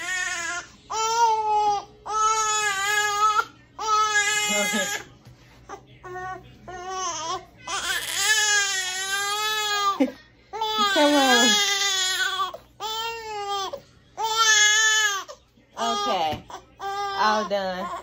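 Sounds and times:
infant crying: 5.7s - 18.0s.

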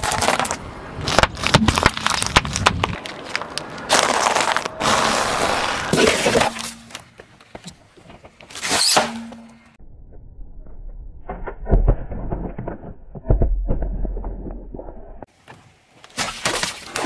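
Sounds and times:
cardboard and foil crunching: 0.0s - 6.3s
tyre crushing plastic cups: 0.0s - 7.0s.

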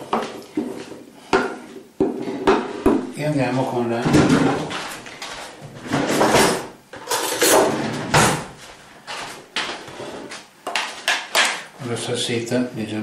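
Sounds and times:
kitchen utensils scraping: 5.8s - 8.2s
dishes clattering: 5.8s - 8.5s.

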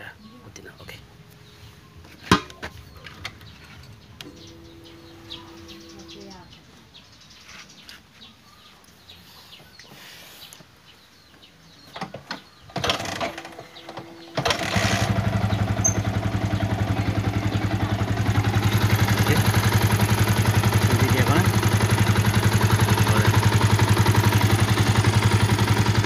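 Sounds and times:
motorcycle engine starting and idling: 2.3s - 6.6s, 11.8s - 26.0s.

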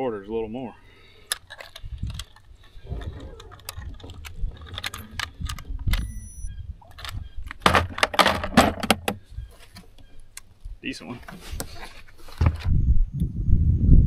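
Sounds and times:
fishing gear clicks and rattles: 1.2s - 9.2s.

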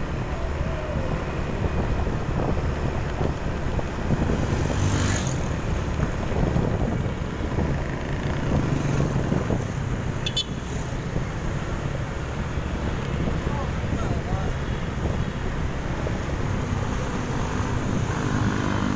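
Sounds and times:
city traffic passing: 0.0s - 18.9s
road noise: 0.0s - 18.9s
vehicle engine rumble: 0.0s - 18.9s.

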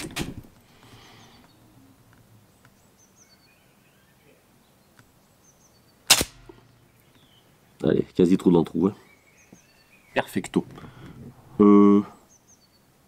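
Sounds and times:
faint bird chirps: 0.9s - 8.0s, 8.7s - 11.0s.

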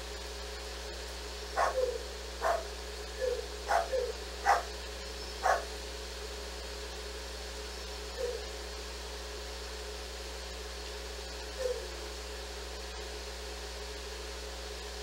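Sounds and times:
dog barking: 1.6s - 4.7s, 5.4s - 5.7s.

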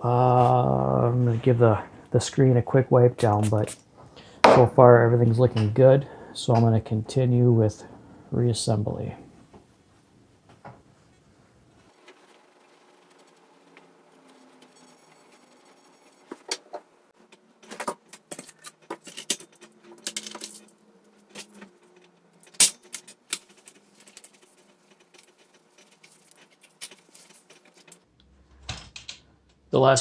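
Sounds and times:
plastic parts clicking and knocking: 16.4s - 29.6s.

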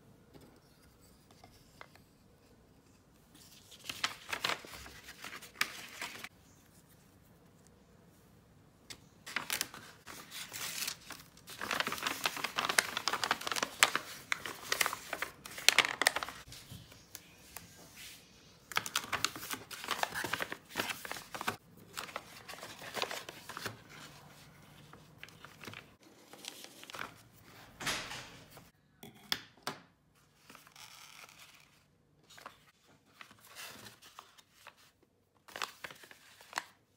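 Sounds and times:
paper envelope rustling: 3.3s - 6.8s, 9.2s - 16.9s, 18.7s - 27.4s, 30.4s - 36.8s.

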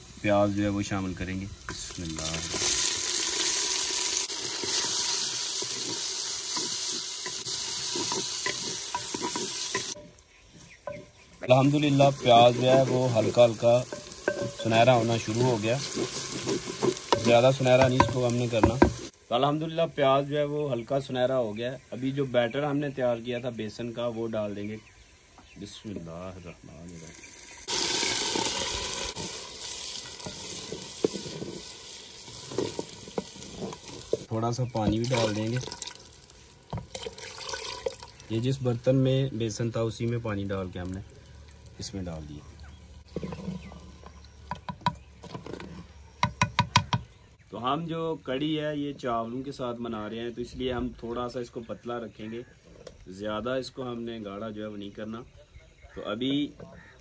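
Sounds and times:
onions sizzling in hot oil: 0.0s - 47.4s
wooden spoon scraping a pot: 3.5s - 19.1s, 27.7s - 35.8s, 43.0s - 46.6s
wooden spoon knocks: 17.1s - 19.0s, 46.2s - 47.1s.

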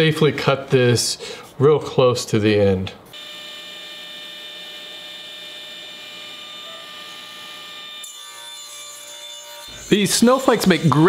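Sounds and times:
table saw spinning: 3.2s - 11.0s.

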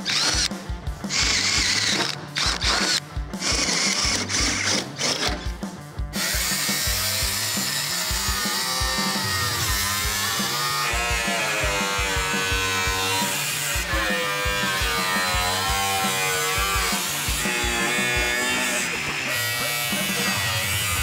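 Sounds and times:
cut-off wheel slicing metal: 0.0s - 5.5s
background music with beat: 0.0s - 21.0s
drill whining through metal: 0.0s - 21.0s.

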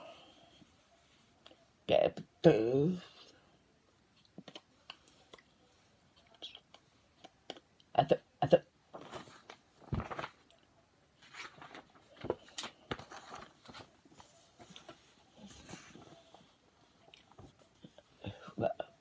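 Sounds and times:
book pages rustling: 8.9s - 10.6s, 11.2s - 18.1s.

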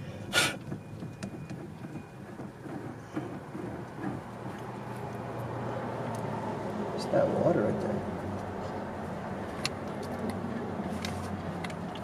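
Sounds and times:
car cabin rumble: 0.0s - 5.4s.

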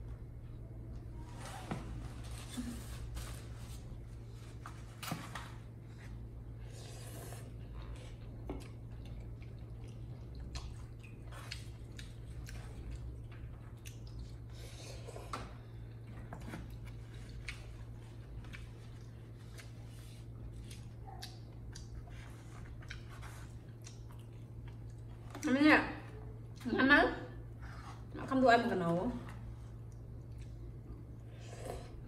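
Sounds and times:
steady low hum: 0.0s - 32.0s
chewing sounds: 7.3s - 25.4s.

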